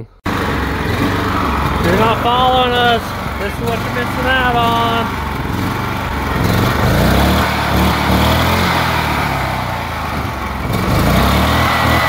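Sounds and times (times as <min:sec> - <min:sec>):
four-stroke engine running: 0:00.3 - 0:12.0.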